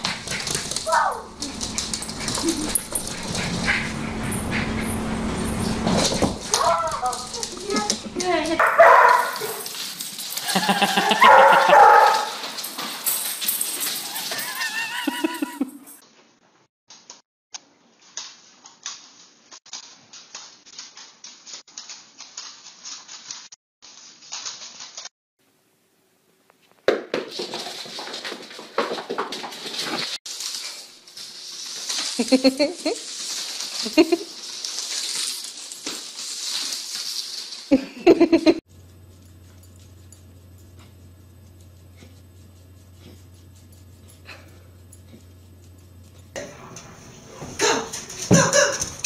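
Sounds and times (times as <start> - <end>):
low steady hum: 0.0 - 8.7, 38.7 - 49.0
dog claws scraping wooden floor: 0.0 - 10.6
small dog barking: 8.6 - 9.6, 11.0 - 12.4, 47.5 - 49.0.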